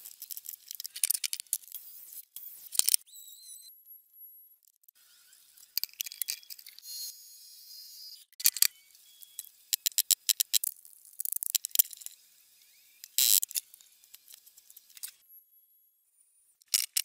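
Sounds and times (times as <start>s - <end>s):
sharp clicks and ticks: 4.6s - 5.0s.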